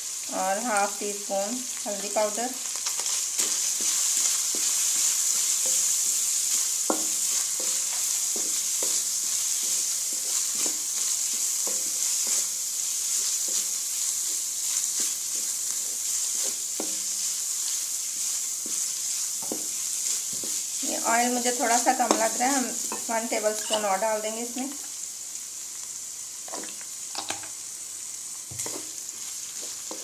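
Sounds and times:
meat sizzling in a pan: 0:00.0 - 0:30.0
wooden spatula scraping a pan: 0:03.0 - 0:24.2, 0:28.5 - 0:30.0.

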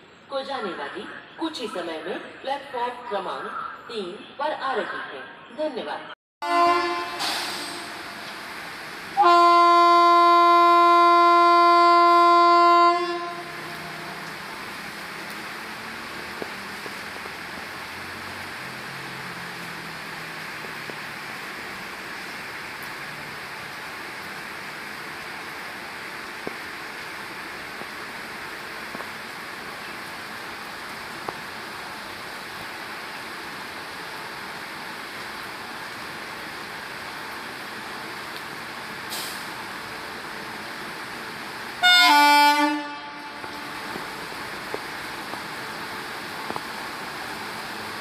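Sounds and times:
train horn blast: 0:06.4 - 0:08.3, 0:09.2 - 0:14.3, 0:41.8 - 0:44.0
heavy rain hissing: 0:06.5 - 0:48.0.

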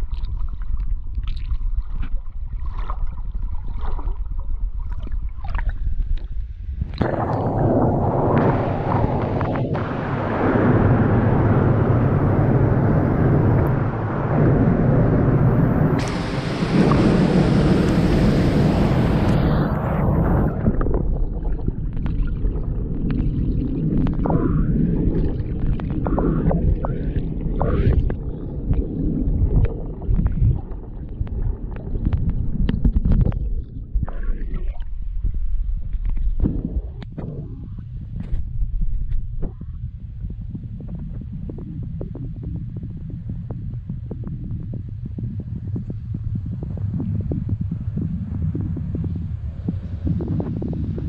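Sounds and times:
water sloshing around camera: 0:00.0 - 0:09.8, 0:19.0 - 0:42.6
bubble pops: 0:06.8 - 0:09.8, 0:16.0 - 0:34.9
waterfall rumble: 0:07.0 - 0:34.7.

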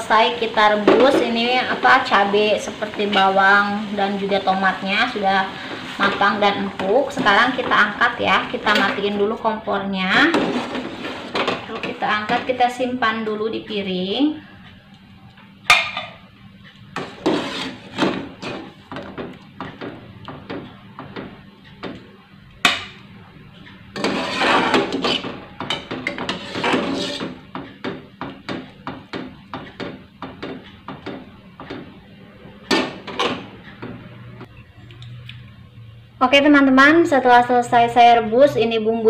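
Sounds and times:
metal spoon scraping saucepan: 0:17.0 - 0:18.7, 0:23.9 - 0:27.4.

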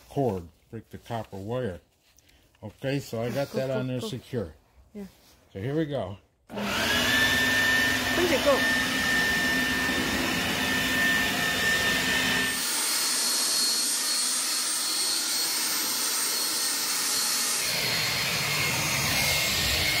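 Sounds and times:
electric leaf blower running: 0:06.5 - 0:20.0.

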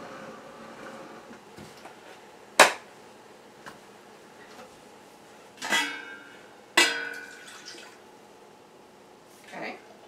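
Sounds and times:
saucepan clanking: 0:05.6 - 0:07.8.

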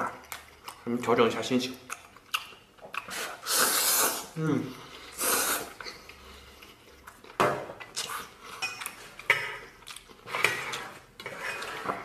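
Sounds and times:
utensils scraping cookware: 0:10.3 - 0:12.0.

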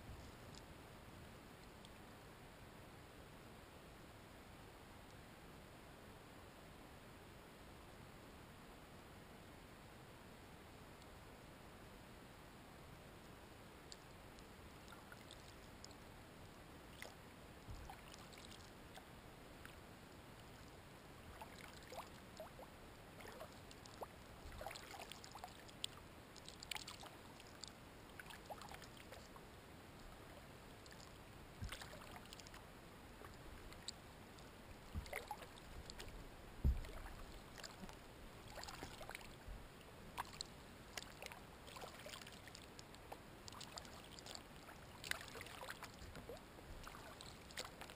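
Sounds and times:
paddle splashes and drips: 0:14.8 - 0:16.0, 0:16.9 - 0:19.8, 0:21.3 - 0:29.4, 0:30.8 - 0:47.9
thump: 0:36.6 - 0:36.9.

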